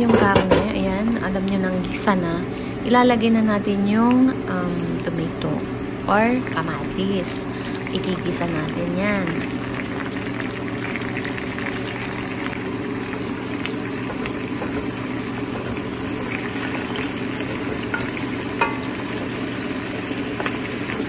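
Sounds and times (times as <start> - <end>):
meat sizzling in a pan: 4.6 - 21.0.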